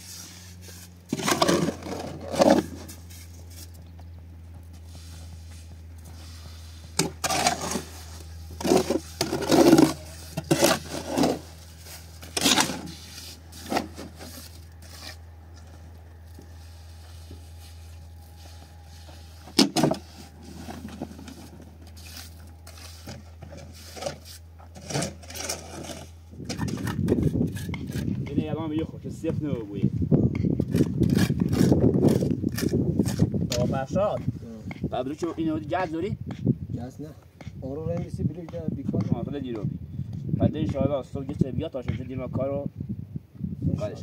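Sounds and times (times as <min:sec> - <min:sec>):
scraping on hard surface: 0:00.0 - 0:03.8, 0:04.8 - 0:15.7, 0:16.3 - 0:28.5
steady low hum: 0:00.0 - 0:44.0.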